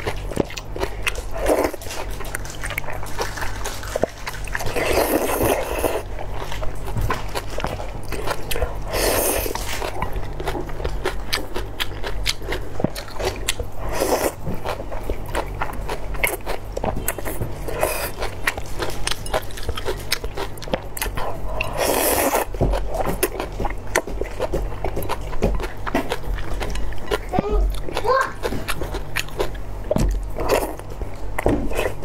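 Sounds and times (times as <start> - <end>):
wet mouth clicks chewing: 0.0 - 32.0
person slurping noodles: 4.7 - 6.0, 8.8 - 9.6, 13.8 - 14.4, 21.3 - 22.5.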